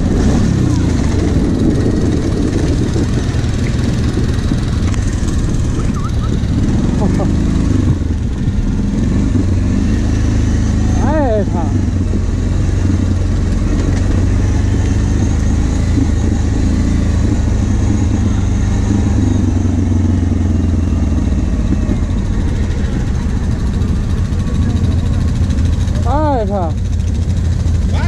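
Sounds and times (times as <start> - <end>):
atv engine running: 0.0 - 28.0.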